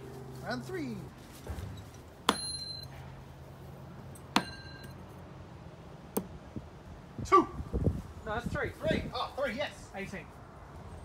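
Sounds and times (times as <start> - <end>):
knives striking dartboard: 2.3 - 2.6
metallic blade ring: 2.3 - 3.0, 4.1 - 5.2.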